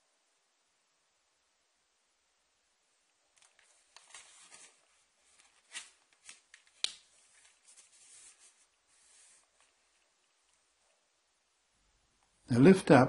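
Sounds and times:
paper rustling and crinkling: 3.4s - 10.6s
crisp paper snap: 5.4s - 7.6s.

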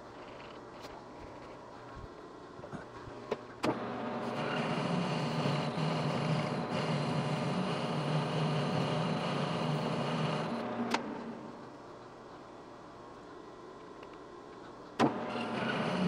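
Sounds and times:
lathe motor running: 3.7s - 11.6s, 15.1s - 16.0s.

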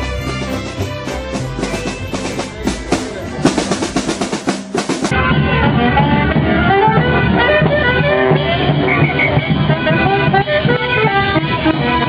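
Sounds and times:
steady bass beat: 0.0s - 5.1s
busy instrumental melody: 0.0s - 12.0s.

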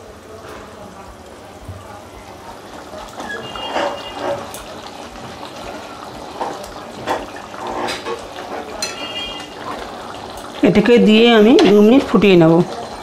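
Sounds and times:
gravy bubbling and sloshing: 2.2s - 13.0s
spatula scraping a metal pan: 3.2s - 4.6s, 7.1s - 9.6s.

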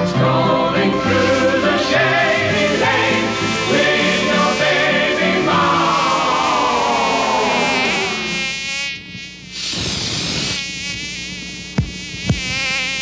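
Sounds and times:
cartoon insect buzz: 0.0s - 13.0s
short hiss: 9.5s - 10.7s.

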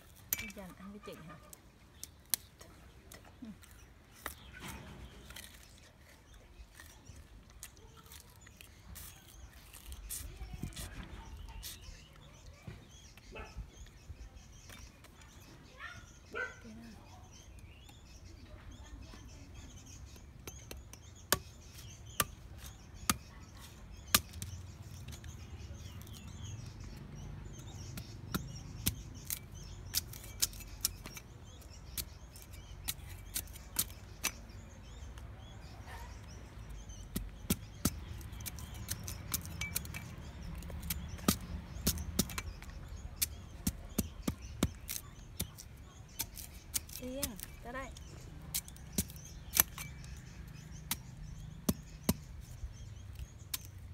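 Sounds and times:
cleaver chopping sugarcane: 20.1s - 35.1s, 36.7s - 53.9s.

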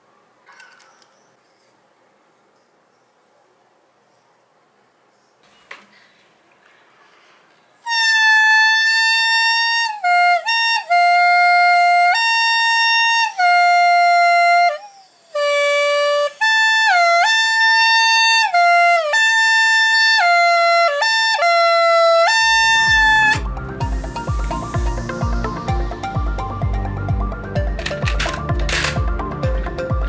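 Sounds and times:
homemade horn blowing held notes: 7.8s - 30.0s.

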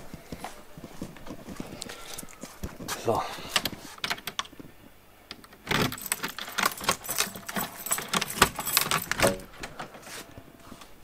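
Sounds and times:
lock clicking: 5.3s - 9.8s
keys jangling: 5.6s - 9.8s.

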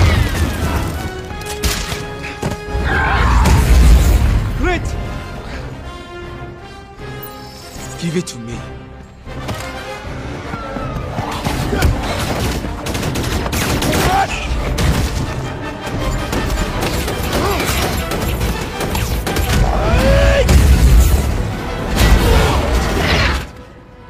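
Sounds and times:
orchestral score: 0.0s - 24.0s
explosions and impacts: 19.2s - 23.4s.

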